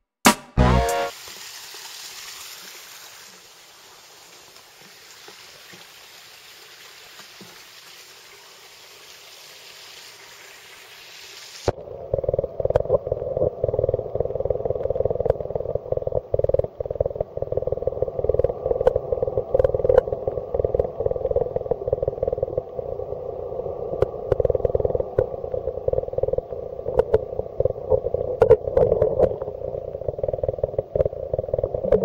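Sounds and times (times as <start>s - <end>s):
faint hiss of pond water: 0.9s - 12.2s
muffled underwater rumble: 11.8s - 32.0s.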